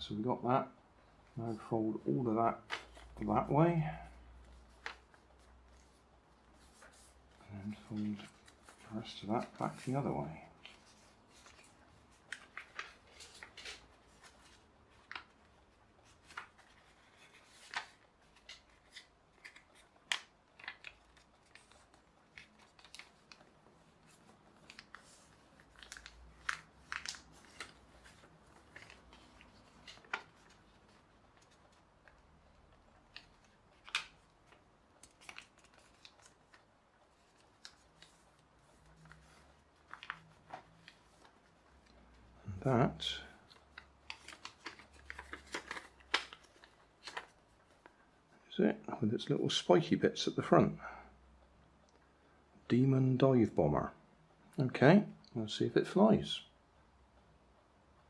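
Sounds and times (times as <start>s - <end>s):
paper folding crackles and snaps: 1.3s - 3.5s, 4.4s - 42.3s, 43.1s - 48.1s
paper rustling: 1.4s - 48.0s.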